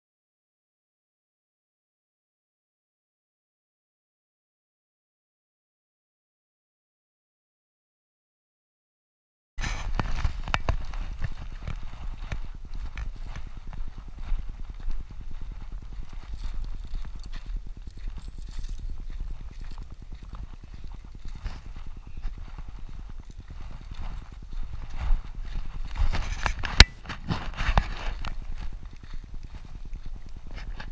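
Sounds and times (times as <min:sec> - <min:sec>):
camera rustling and knocking: 0:09.6 - 0:28.9
footsteps on dirt trail: 0:09.6 - 0:30.9.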